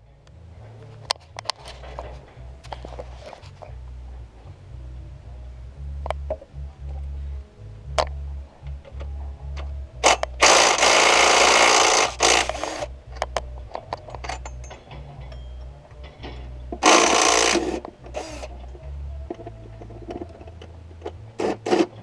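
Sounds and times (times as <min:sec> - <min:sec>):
cordless power tool whirring: 0:10.0 - 0:12.9
handling clicks and knocks: 0:12.4 - 0:17.0.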